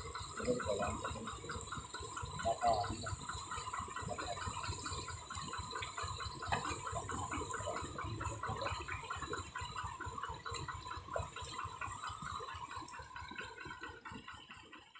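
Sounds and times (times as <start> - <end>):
steady high drone: 0.0 - 9.9.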